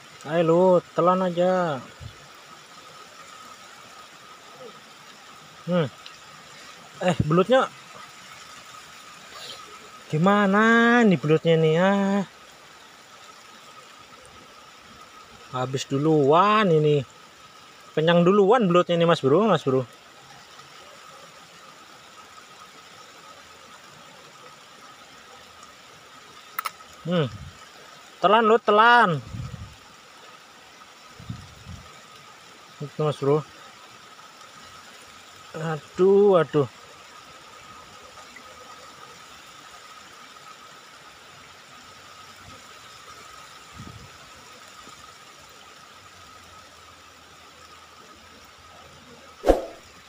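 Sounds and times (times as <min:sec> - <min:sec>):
rain falling on wet ground: 0:00.0 - 0:50.0
thin high hum: 0:49.4 - 0:49.8.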